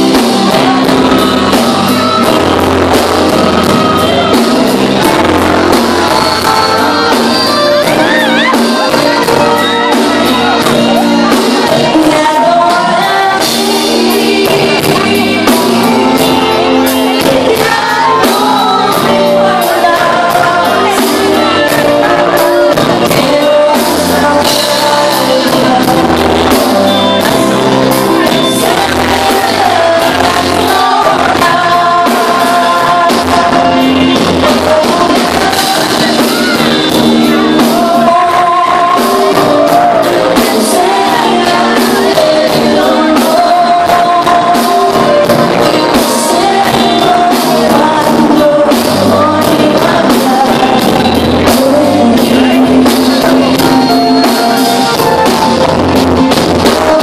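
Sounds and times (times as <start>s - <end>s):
drum beat: 0.0s - 57.0s
live band playing: 0.0s - 57.0s
woman singing into microphone: 0.0s - 57.0s
people shouting: 0.5s - 11.4s.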